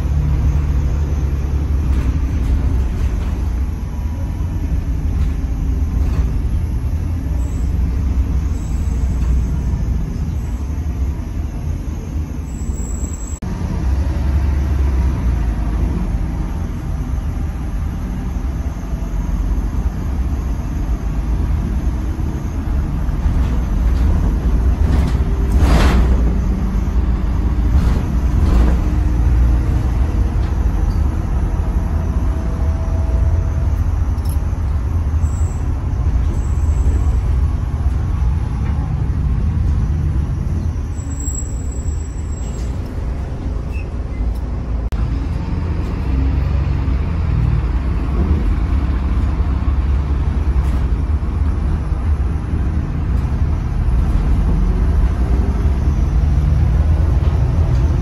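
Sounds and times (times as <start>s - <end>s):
bus engine rumble and road noise: 0.0s - 58.0s.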